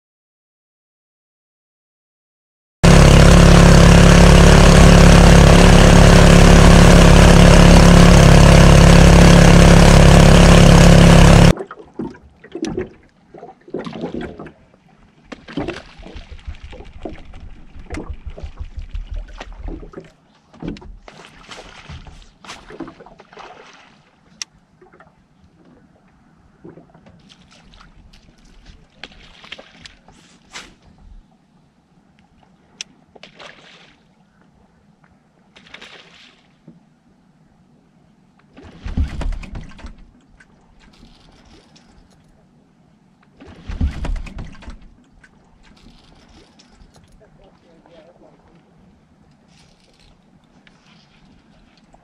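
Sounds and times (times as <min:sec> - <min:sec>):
boat motor running: 0:02.8 - 0:11.6, 0:16.0 - 0:21.1, 0:38.8 - 0:41.4, 0:43.6 - 0:48.5
water lapping and splashing: 0:10.8 - 0:31.5, 0:32.3 - 0:37.0, 0:38.4 - 0:52.0.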